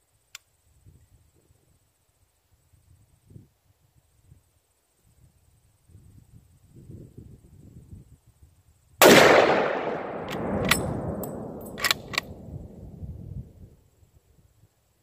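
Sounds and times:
rifle bolt clicks: 9.0 - 12.4
rifle shot with echo: 9.0 - 12.8.

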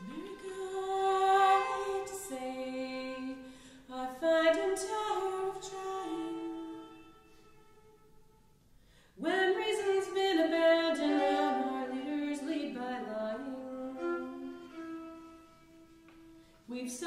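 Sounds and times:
woman singing: 0.0 - 7.3, 9.2 - 14.7, 16.7 - 17.0
bowed violin: 0.0 - 8.5, 9.2 - 17.0.

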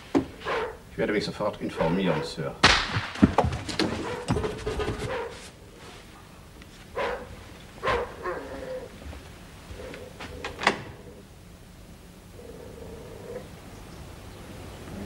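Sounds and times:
dog barking: 0.4 - 0.8, 1.7 - 2.4, 3.9 - 5.4, 6.9 - 8.8.

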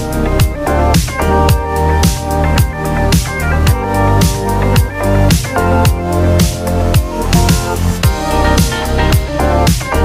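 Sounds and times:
instrumental music with drum beat: 0.0 - 10.0.

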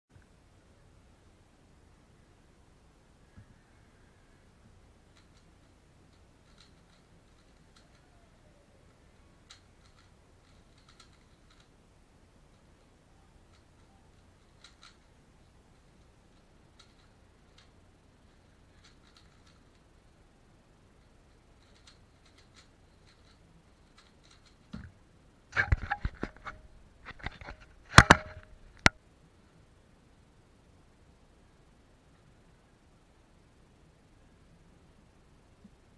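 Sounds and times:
puzzle cube clicking: 8.9 - 11.7, 12.5 - 15.1, 18.8 - 19.8, 21.3 - 24.8
sharp handling clicks and knocks: 21.0 - 29.0.

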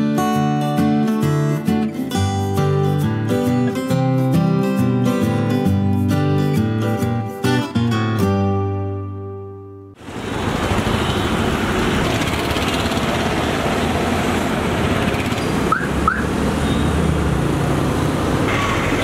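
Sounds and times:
street traffic: 10.0 - 19.0.

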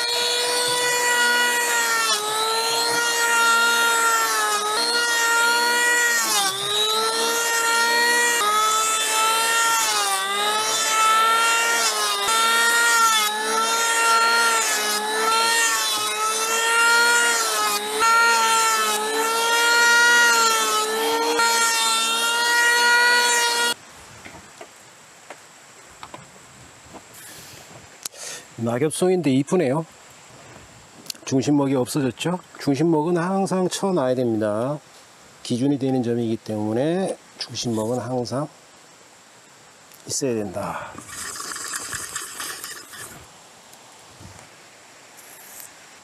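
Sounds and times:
electric hand planer whining: 0.0 - 23.8.

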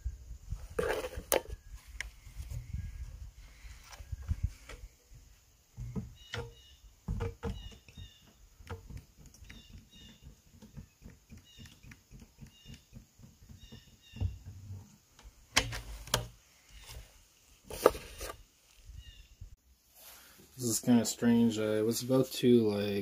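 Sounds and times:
plastic containers knocking: 5.8 - 14.6
small bird chirping: 5.8 - 14.6, 18.9 - 19.5.

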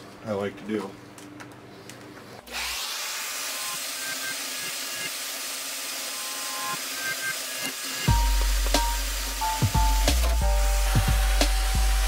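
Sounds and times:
handheld vacuum cleaner hissing: 2.4 - 12.0.

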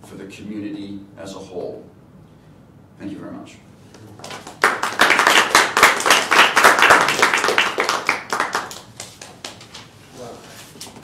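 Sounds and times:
audience applauding: 4.2 - 9.6.

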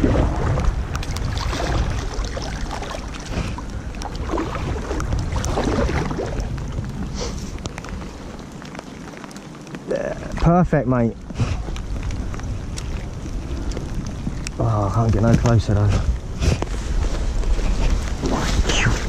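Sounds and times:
low microphone rumble: 0.0 - 8.7
paddle strokes splashing water: 0.0 - 9.3.

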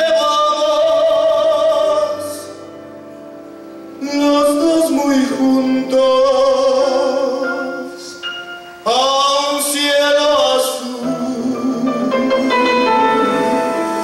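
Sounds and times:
man singing with vibrato: 0.0 - 3.0, 3.9 - 14.0
live band playing: 11.3 - 14.0.

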